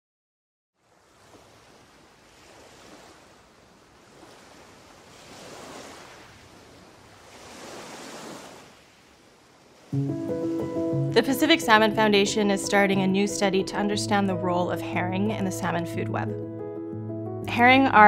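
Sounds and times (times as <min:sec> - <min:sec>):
ocean waves washing in: 0:00.8 - 0:12.5.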